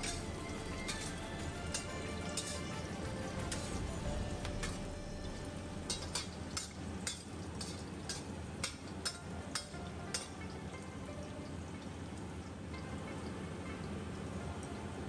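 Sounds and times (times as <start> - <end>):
metal spatula scraping wok: 0.0 - 8.3
food sizzling in oil: 0.0 - 10.5.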